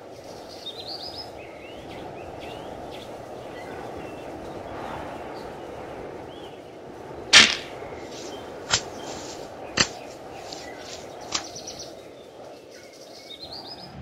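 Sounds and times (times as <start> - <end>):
outdoor hiss: 0.0 - 13.3
sharp cracks: 7.3 - 11.7
sharp swish: 7.4 - 11.6.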